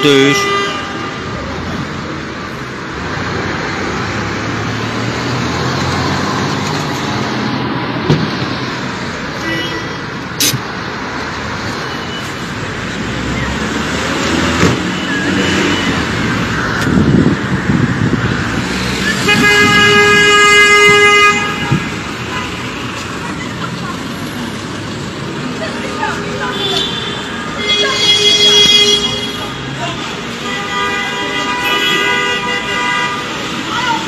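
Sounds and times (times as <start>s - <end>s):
car engines: 0.0s - 34.0s
tyres on the road: 0.0s - 34.0s.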